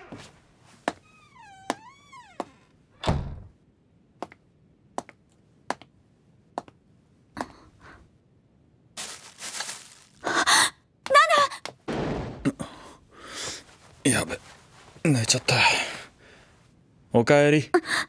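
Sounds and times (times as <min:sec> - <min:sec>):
door creaking and shutting: 0:00.0 - 0:03.5
soft footsteps: 0:09.0 - 0:10.2
plastic bag rustling: 0:09.0 - 0:10.4.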